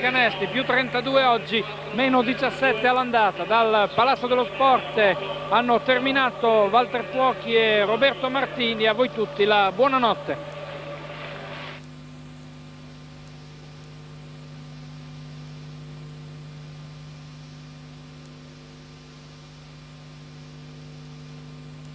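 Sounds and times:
mains hum: 0.0s - 21.9s.

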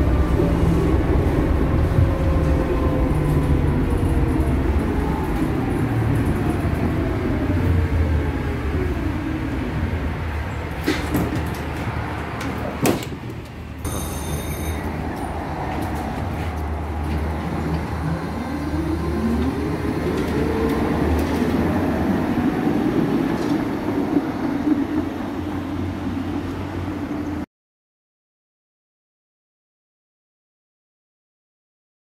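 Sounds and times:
tram traction whine rising: 0.0s - 27.4s
short high beep: 13.9s - 14.9s.

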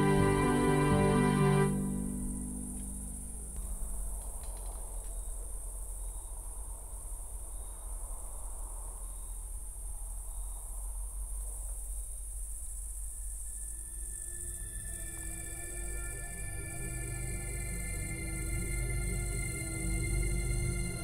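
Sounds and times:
high insect chorus: 0.0s - 21.0s
faint clicks: 2.7s - 6.9s.

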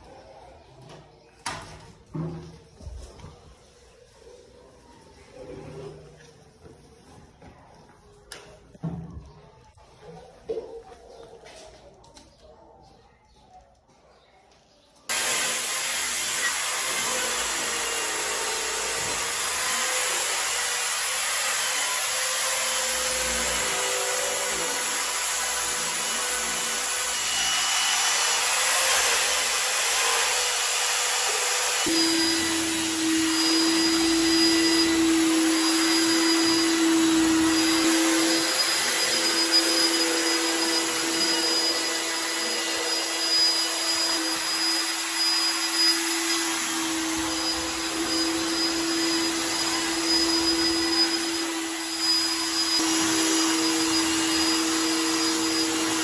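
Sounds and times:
rotary scrubbing machine: 15.1s - 56.0s
vacuum extraction motor: 15.1s - 56.0s.

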